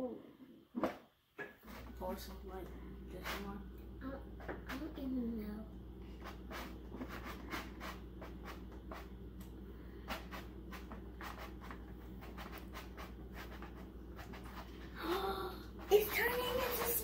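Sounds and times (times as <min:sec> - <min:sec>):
plastic toy clicking and scraping: 0:15.8 - 0:17.0.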